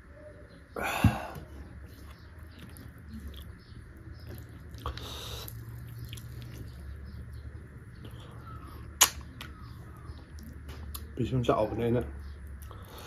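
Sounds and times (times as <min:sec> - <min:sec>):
person chewing food: 0:01.8 - 0:07.4, 0:08.0 - 0:11.1
wet mouth clicks: 0:09.0 - 0:09.5.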